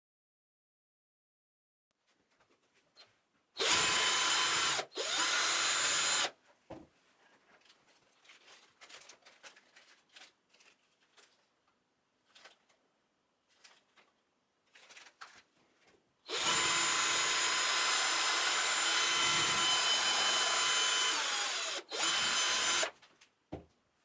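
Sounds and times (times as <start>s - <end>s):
power tool motor bursts: 3.6s - 6.3s, 16.3s - 22.9s
knock: 6.7s - 6.9s, 23.5s - 23.7s
plastic bag rustling: 7.4s - 11.6s.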